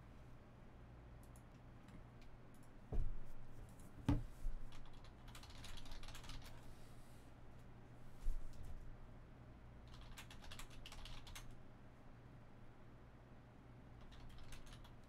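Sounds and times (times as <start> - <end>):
keyboard and mouse clicking: 4.7 - 6.5, 9.9 - 11.6, 14.0 - 15.0.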